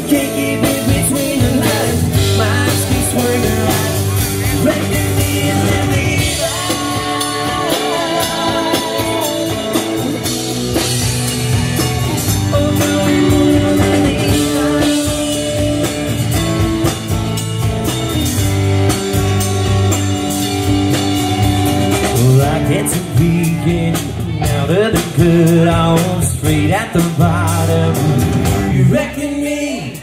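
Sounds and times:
country rock band playing: 0:00.0 - 0:30.0.

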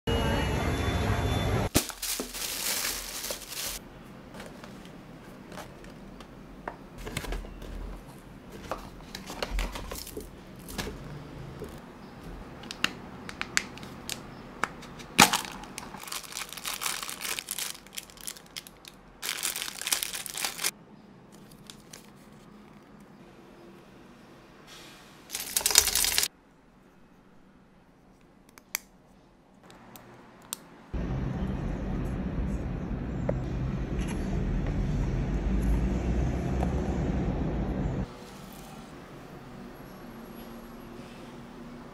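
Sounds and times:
plastic bag crinkling: 0:01.7 - 0:03.8, 0:15.1 - 0:20.7, 0:21.4 - 0:23.0, 0:25.3 - 0:26.3
plastic and paper rustles and taps: 0:01.8 - 0:06.3, 0:07.0 - 0:11.0.

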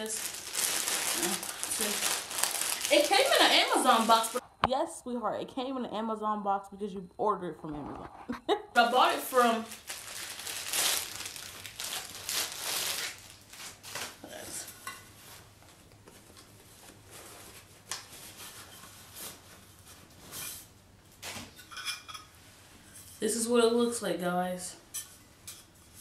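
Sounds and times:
cardboard and paper rustling: 0:00.0 - 0:04.4.

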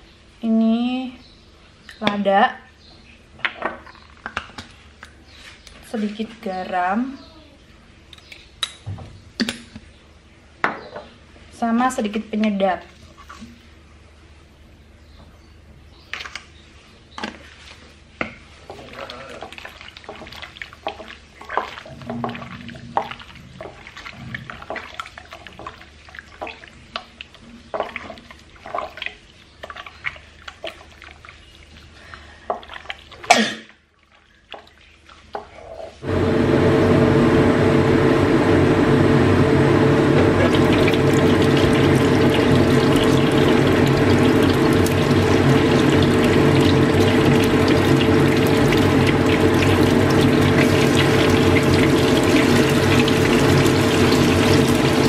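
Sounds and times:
hands squishing raw chicken: 0:18.6 - 0:33.3
constant hum: 0:36.0 - 0:55.0.

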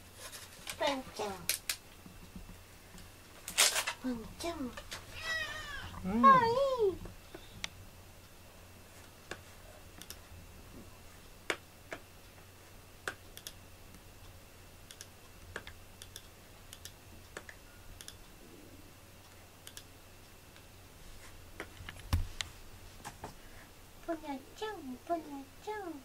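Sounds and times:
low steady hum: 0:00.0 - 0:26.0
faint clicks and taps: 0:09.0 - 0:18.3.

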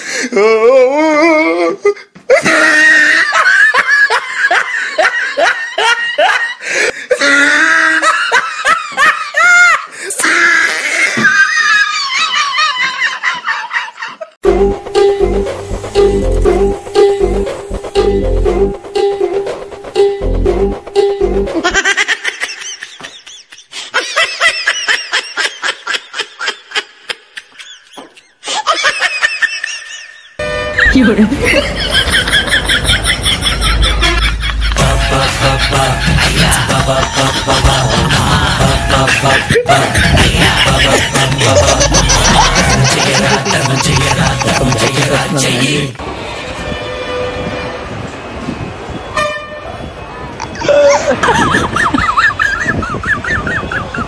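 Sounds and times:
person laughing loudly: 0:00.4 - 0:09.9, 0:10.7 - 0:14.4, 0:21.5 - 0:45.7, 0:50.5 - 0:54.0.

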